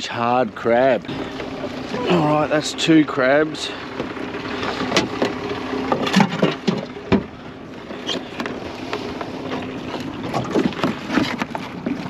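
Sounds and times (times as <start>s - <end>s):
crabs and gear knocking: 4.8s - 7.3s, 9.5s - 12.0s.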